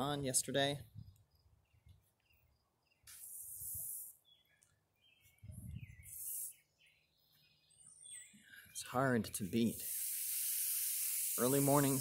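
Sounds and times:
songbirds chirping: 0.0s - 9.8s
bursts of high hiss: 3.1s - 4.2s, 6.0s - 6.6s, 9.6s - 12.0s.

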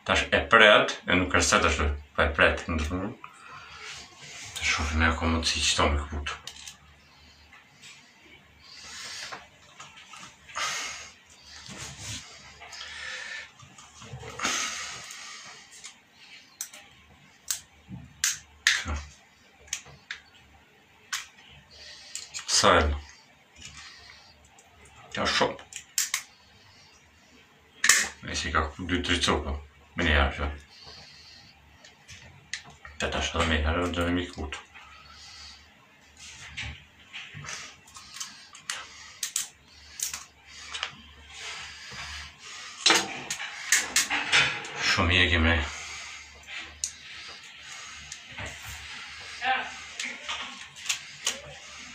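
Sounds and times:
pliers snipping electrical cable: 25.8s - 26.3s.

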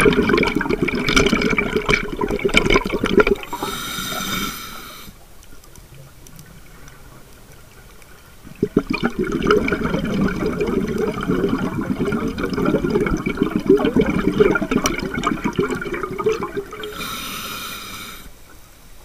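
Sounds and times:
exhaled bubbles gurgling: 0.0s - 4.9s, 5.8s - 18.4s
regulator inhalation hiss: 3.5s - 5.2s, 16.8s - 18.4s.

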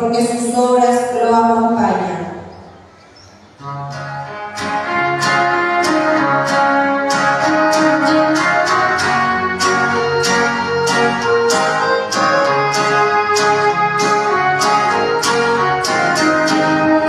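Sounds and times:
instrumental music with held chords: 3.6s - 17.0s.

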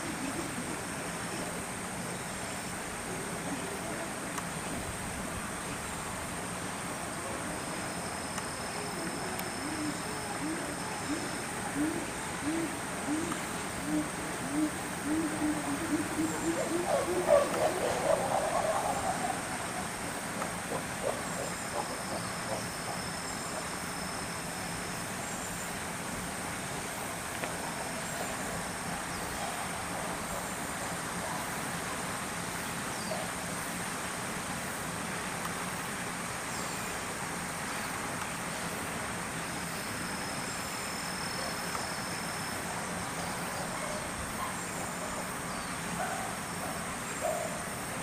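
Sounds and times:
low steady hum: 0.0s - 47.2s
high-pitched insect drone: 7.0s - 25.8s
insect trilling: 7.5s - 24.4s.

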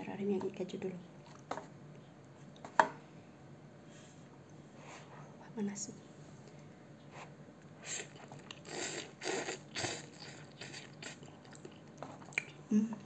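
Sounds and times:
person chewing: 7.7s - 13.0s
person slurping noodles: 7.8s - 12.4s.

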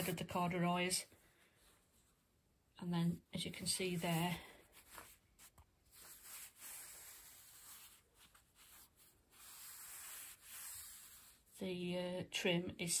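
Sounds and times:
fingers rubbing corduroy fabric: 5.4s - 11.5s.

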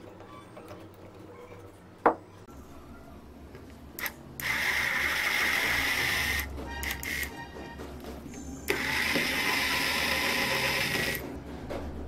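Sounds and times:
electric drill whining: 4.0s - 7.3s, 8.7s - 11.2s.

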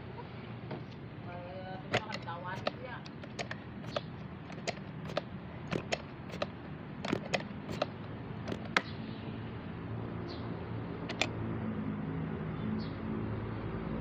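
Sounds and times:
light handling clicks: 1.9s - 8.9s, 11.1s - 11.3s.

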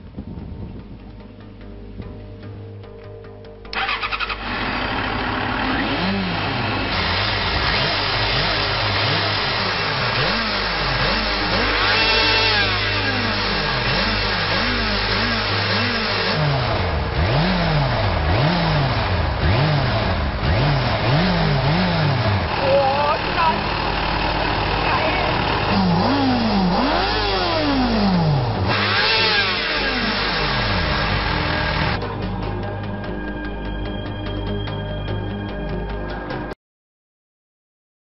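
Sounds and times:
motorcycle engine starter cranking: 3.6s - 6.0s
motorcycle engine revving: 3.7s - 32.2s.

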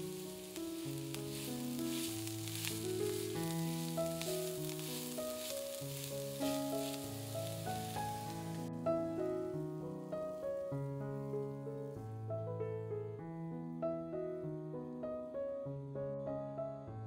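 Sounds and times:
food sizzling in a pan: 0.0s - 8.7s
slow background music: 0.0s - 17.0s.

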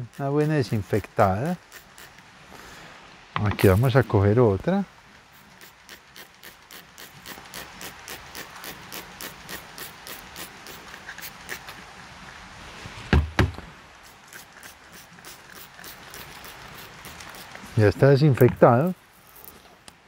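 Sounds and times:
spray bottle squirting: 0.0s - 2.2s, 5.3s - 11.8s, 14.0s - 17.7s.

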